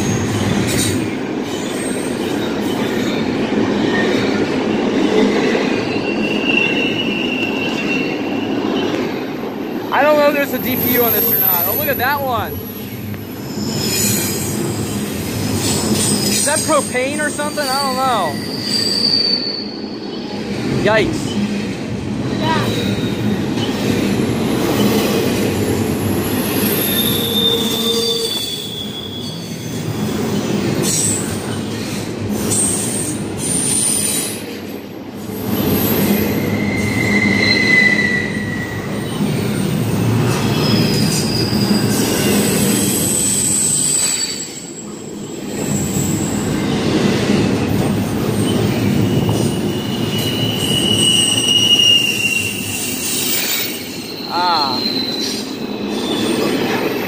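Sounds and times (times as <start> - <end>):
steel wheels rolling on rail: 0.0 - 57.0
high wheel squeals: 5.8 - 8.6, 10.0 - 20.4, 25.6 - 31.3, 35.3 - 39.7, 40.3 - 46.8, 48.2 - 57.0.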